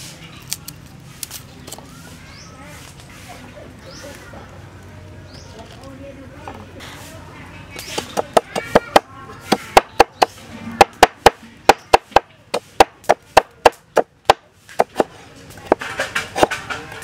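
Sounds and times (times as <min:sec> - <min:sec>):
knife chopping on wooden board: 0:08.0 - 0:15.1.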